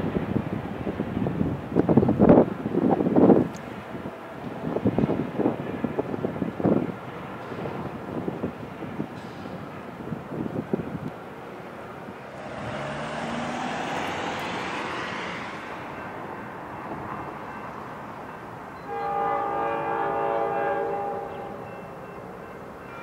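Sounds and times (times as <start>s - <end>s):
train running noise: 0.0s - 23.0s
locomotive horn blast: 18.8s - 22.3s.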